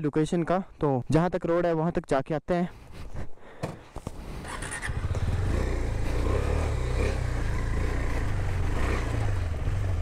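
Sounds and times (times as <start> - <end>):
motorcycle engine running: 4.1 - 10.0.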